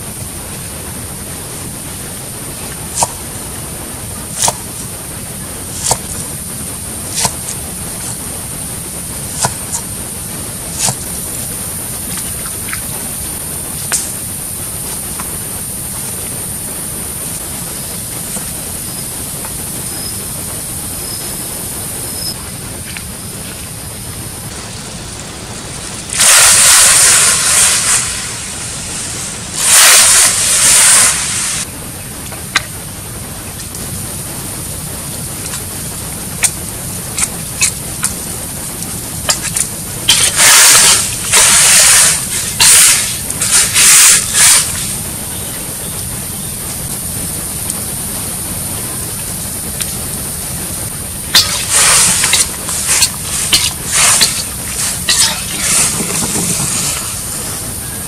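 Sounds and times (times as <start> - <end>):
steady high hiss: 0.0 - 58.0
water splashing in a wok: 26.0 - 31.6, 39.3 - 44.8, 51.3 - 57.3.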